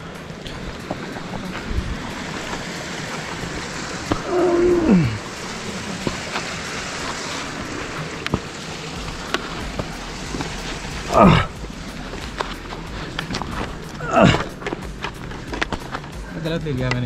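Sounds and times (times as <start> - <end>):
scraping and crunching on icy snow: 0.0 - 16.7
steady hiss: 0.0 - 17.0
person groaning: 4.2 - 5.3, 11.1 - 11.6, 14.0 - 14.6.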